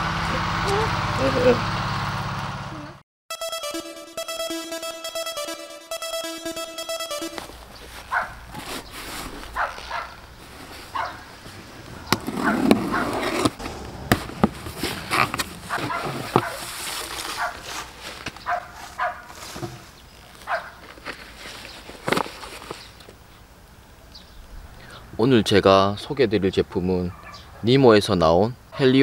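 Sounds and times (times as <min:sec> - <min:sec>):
dog barking: 0:08.1 - 0:08.4, 0:09.5 - 0:10.2, 0:10.9 - 0:11.3, 0:12.4 - 0:13.2, 0:15.7 - 0:16.7, 0:17.4 - 0:17.7, 0:18.4 - 0:19.3, 0:20.5 - 0:20.8, 0:27.1 - 0:27.7
cardboard box clicks and rustles: 0:12.1 - 0:18.5, 0:19.4 - 0:23.0.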